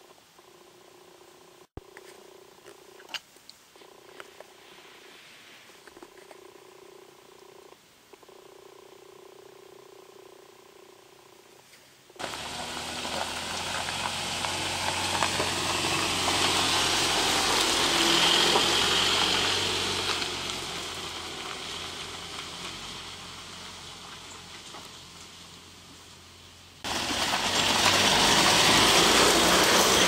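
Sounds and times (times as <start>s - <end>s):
pickup truck driving past: 12.2s - 23.9s, 26.9s - 30.0s
tyres crunching on gravel: 12.2s - 25.3s, 26.8s - 30.0s.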